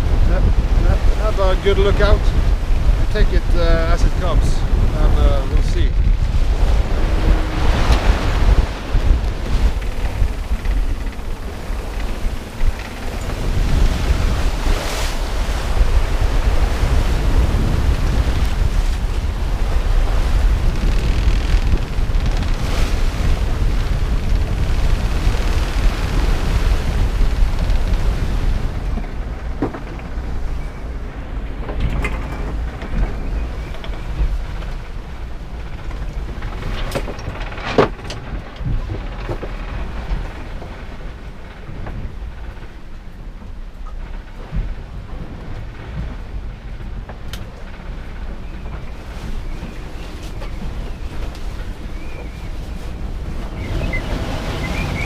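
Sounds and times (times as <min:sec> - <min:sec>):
rough sea breaking: 0:00.0 - 0:55.0
wind buffeting microphone: 0:00.0 - 0:55.0
knocks and rattles: 0:20.4 - 0:43.1.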